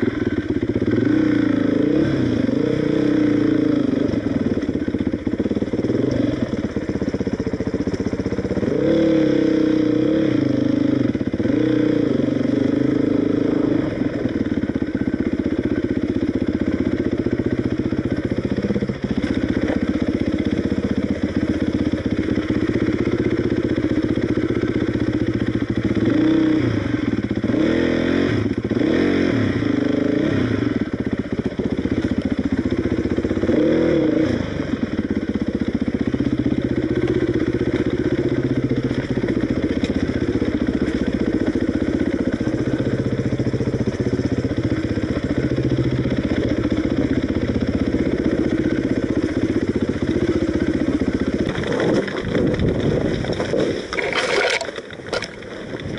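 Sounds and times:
motorcycle engine running: 0.0s - 55.9s
motorcycle throttle blips: 28.3s - 55.9s.

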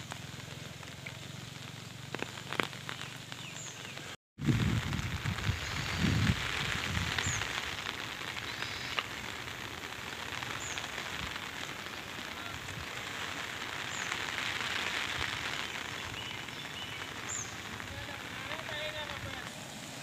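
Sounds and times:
rain falling on pond: 0.0s - 20.0s.

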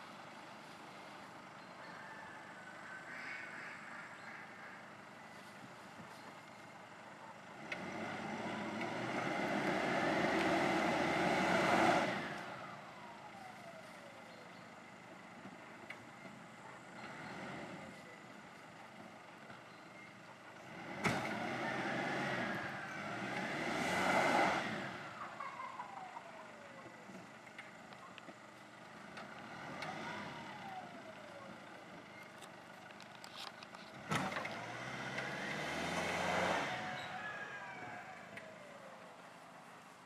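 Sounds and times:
truck engine revving: 7.5s - 13.2s, 20.5s - 26.9s, 29.1s - 32.5s, 33.8s - 38.8s.

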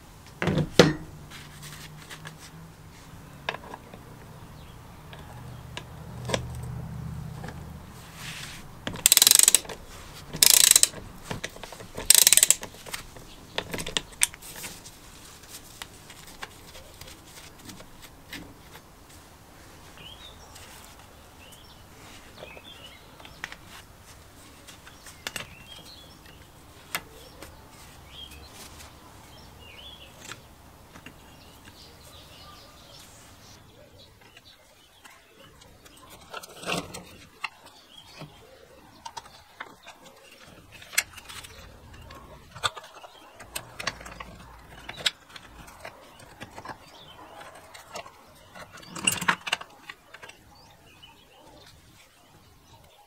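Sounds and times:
ratchet wrench clicking: 9.0s - 9.8s, 10.4s - 11.0s, 12.0s - 12.7s.

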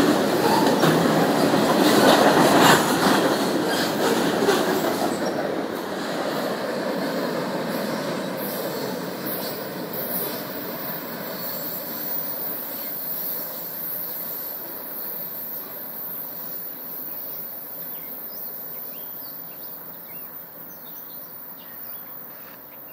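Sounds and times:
freight train wheels rumbling: 0.0s - 22.9s.

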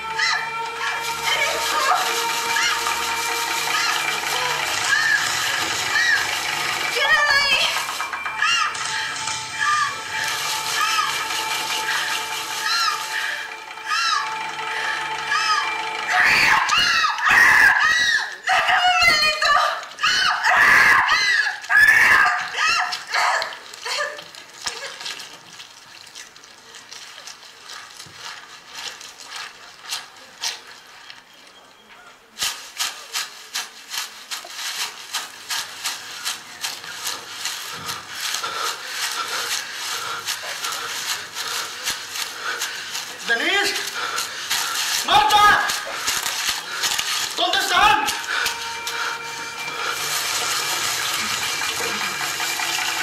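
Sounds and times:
voices shrieking: 0.0s - 24.0s, 37.0s - 52.2s.

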